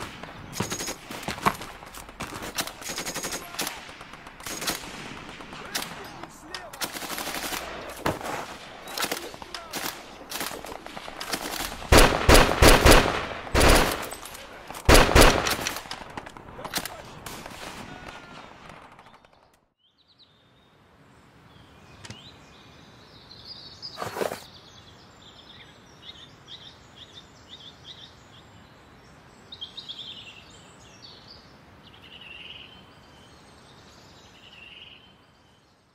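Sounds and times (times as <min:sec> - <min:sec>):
rifle and machine-gun fire: 0:00.0 - 0:19.4
sharp crack: 0:00.0 - 0:19.4
birds chirping: 0:00.0 - 0:35.9.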